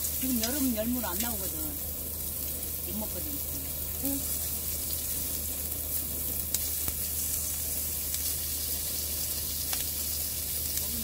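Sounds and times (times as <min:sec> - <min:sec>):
pork sizzling on a griddle pan: 0:00.0 - 0:11.0.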